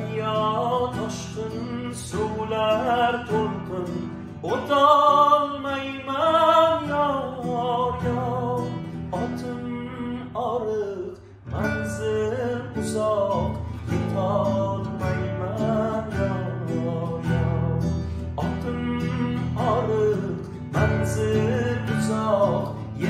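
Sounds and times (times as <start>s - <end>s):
man singing: 0.0s - 23.0s
nylon-string guitar: 0.0s - 23.0s.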